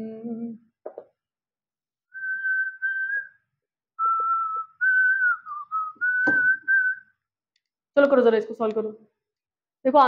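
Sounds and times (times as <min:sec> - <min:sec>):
person whistling a tune: 0:02.1 - 0:07.2
short tap: 0:06.2 - 0:06.6.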